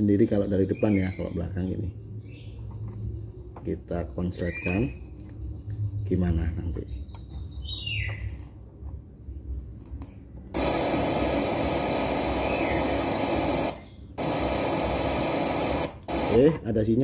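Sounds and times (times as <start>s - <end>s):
loud static hiss from speaker: 10.6s - 17.0s.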